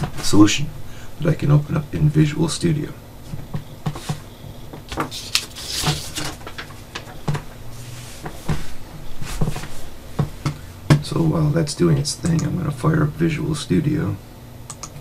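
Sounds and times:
low steady hum: 0:00.0 - 0:15.0
short rustling: 0:04.9 - 0:06.6.

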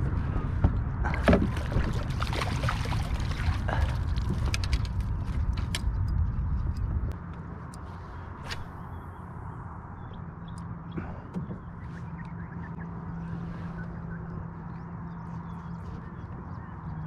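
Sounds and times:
landing net splashing in water: 0:01.1 - 0:04.5.

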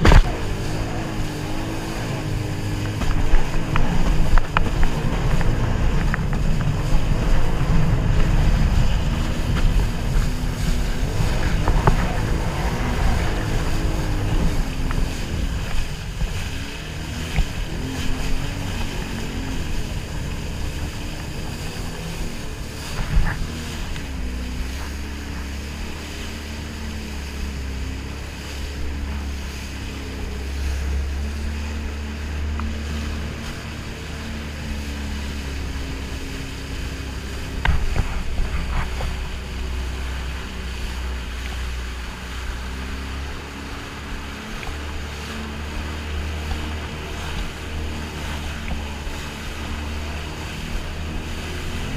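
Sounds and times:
jet ski engine running: 0:00.0 - 0:51.9
wind on microphone: 0:00.0 - 0:51.9.

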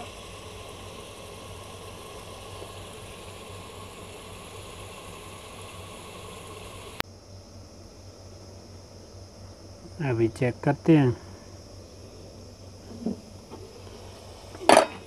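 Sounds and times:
vegetables sizzling in oil: 0:00.0 - 0:07.0.

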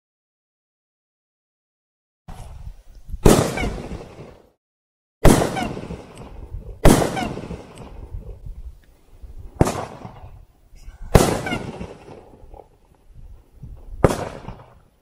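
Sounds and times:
firework shells bursting: 0:03.2 - 0:04.5, 0:05.2 - 0:08.3, 0:11.1 - 0:13.1, 0:13.7 - 0:15.0.

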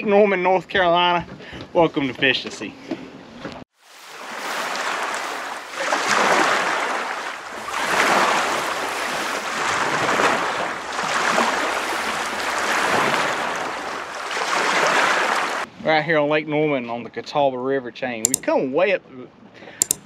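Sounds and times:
lake waves splashing: 0:03.8 - 0:15.7.

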